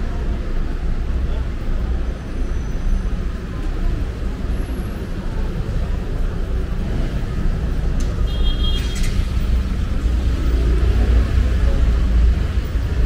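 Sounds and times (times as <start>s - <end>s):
motor vehicles rumbling past: 3.8s - 13.0s.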